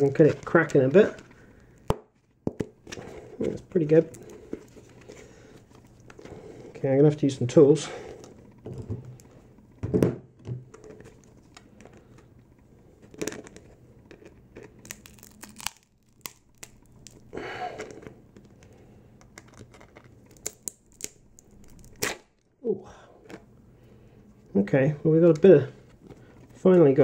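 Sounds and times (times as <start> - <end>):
plastic crinkling and tearing: 13.0 - 22.5.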